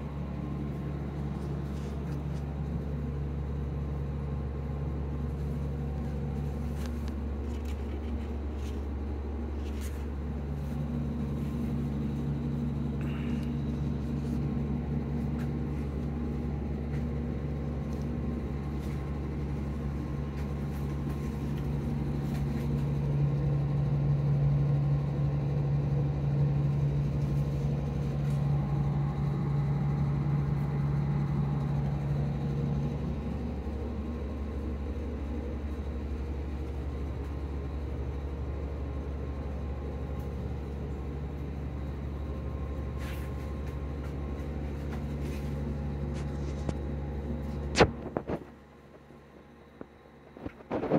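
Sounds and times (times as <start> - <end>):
low mechanical hum: 0.0 - 50.9.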